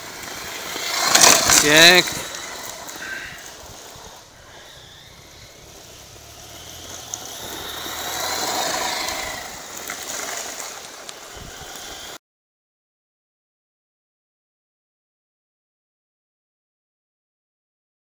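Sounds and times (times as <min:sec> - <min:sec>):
toy truck driving over gravel: 0:00.0 - 0:12.2.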